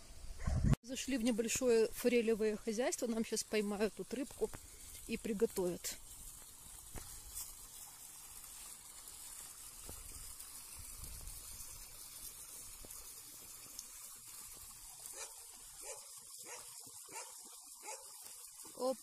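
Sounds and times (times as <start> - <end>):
hiss of running water: 0.9 - 19.0.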